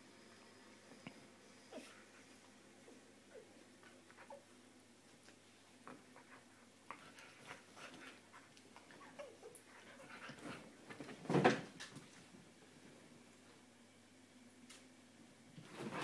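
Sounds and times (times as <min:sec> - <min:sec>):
animals scuffling on a sofa: 0:15.6 - 0:16.0.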